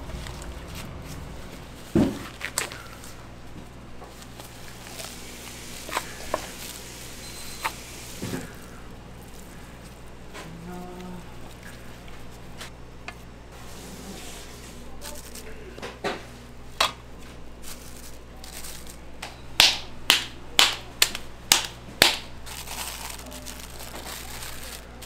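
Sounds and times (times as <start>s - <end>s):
meat slapped by hand: 19.2s - 22.3s.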